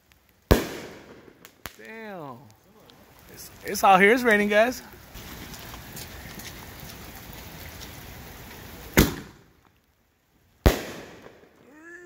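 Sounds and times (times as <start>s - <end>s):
rain hiss: 0.0s - 12.0s
firework shell bursting bang: 9.0s - 9.4s
shell launching thump: 9.0s - 9.4s.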